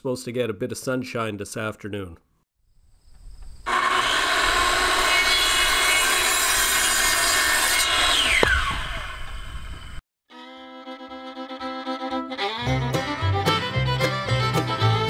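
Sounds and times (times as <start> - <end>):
power saw cutting wood: 3.7 - 9.6
saw blade spinning down: 3.7 - 10.0.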